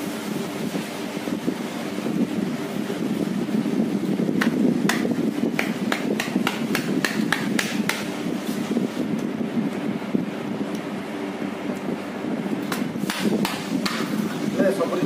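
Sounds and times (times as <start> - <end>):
sharp knocks: 4.4 - 8.1, 12.7 - 14.1.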